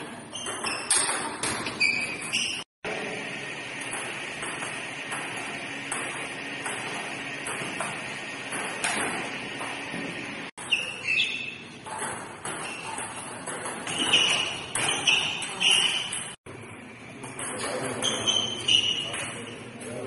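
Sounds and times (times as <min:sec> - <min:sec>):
short high squeaks: 0:00.3 - 0:02.7, 0:10.6 - 0:11.7, 0:13.9 - 0:16.4, 0:18.0 - 0:19.6.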